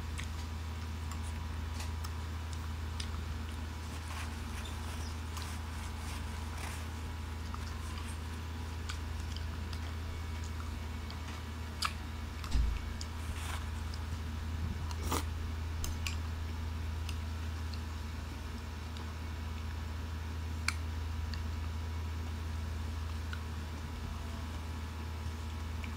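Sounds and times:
steady low hum: 0:00.0 - 0:25.9
wet chewing: 0:00.1 - 0:16.3.

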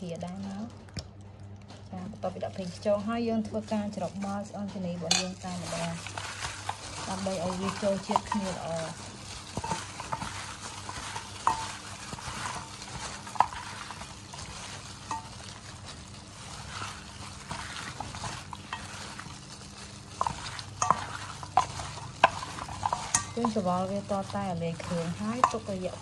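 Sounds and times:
wet squishing in plastic bag: 0:00.0 - 0:26.0.

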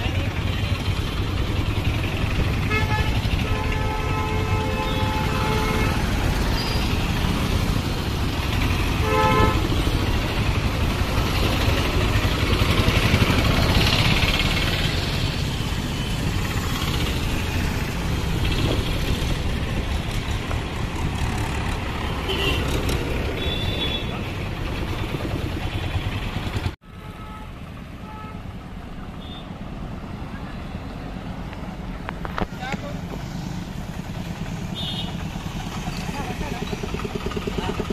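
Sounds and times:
auto-rickshaw and motorcycle engines: 0:00.0 - 0:37.9
vehicle horn: 0:02.6 - 0:06.9, 0:08.9 - 0:09.9, 0:22.2 - 0:24.2, 0:26.8 - 0:28.5, 0:34.8 - 0:35.2.

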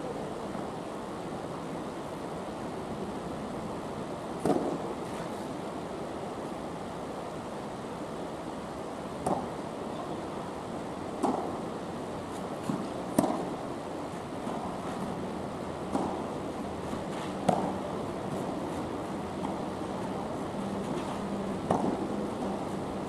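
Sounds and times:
steady hiss: 0:00.0 - 0:23.0
tennis ball bouncing: 0:04.4 - 0:04.8, 0:09.2 - 0:09.5, 0:11.2 - 0:11.6, 0:12.6 - 0:13.6, 0:15.8 - 0:16.2, 0:16.8 - 0:18.8, 0:20.8 - 0:22.3
tennis ball hit by racket: 0:04.4 - 0:04.8, 0:09.2 - 0:09.5, 0:11.2 - 0:11.6, 0:12.6 - 0:13.6, 0:15.8 - 0:16.2, 0:16.9 - 0:18.5, 0:20.9 - 0:22.1.

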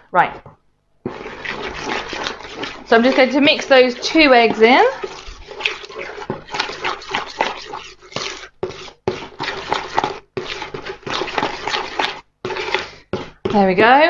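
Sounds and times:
spoon scraping in plastic bowl: 0:01.0 - 0:14.0.

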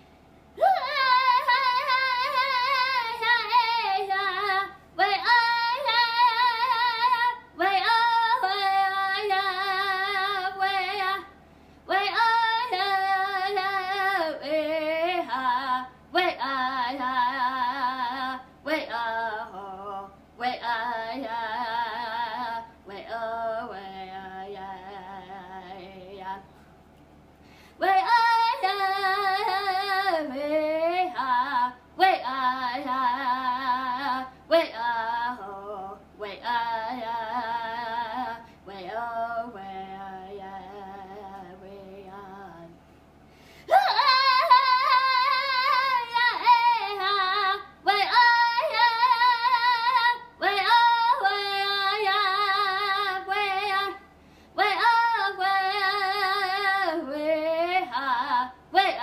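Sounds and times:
breaths: 0:11.4 - 0:11.9, 0:27.3 - 0:27.8, 0:38.4 - 0:38.7, 0:43.2 - 0:43.7, 0:54.1 - 0:54.6.

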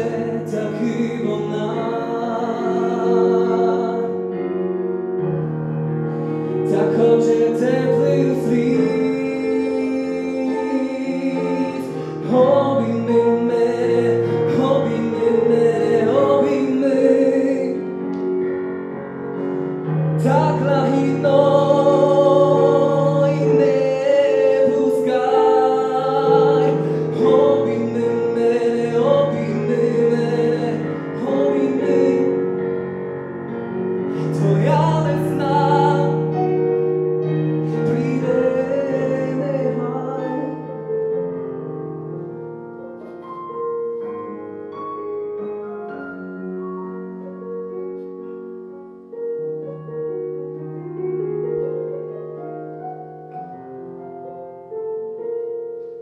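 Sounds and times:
man singing into a microphone: 0:00.0 - 0:04.6, 0:06.3 - 0:18.2, 0:19.4 - 0:32.6, 0:34.0 - 0:41.1
piano accompaniment: 0:00.0 - 0:56.0.

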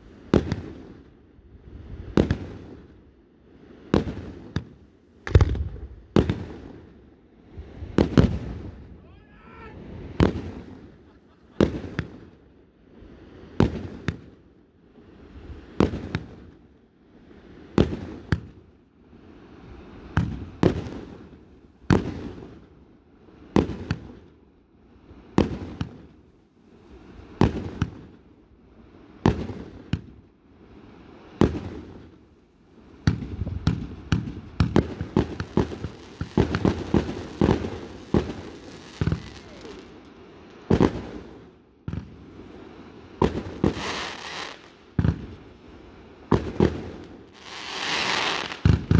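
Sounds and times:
fireworks shells bursting: 0:43.3 - 0:44.7.

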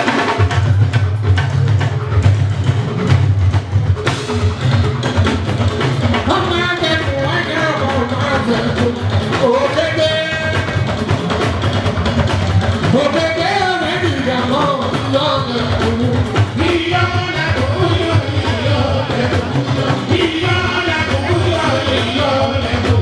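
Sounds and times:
drums and percussion beat: 0:00.0 - 0:23.0
person singing: 0:12.8 - 0:23.0.

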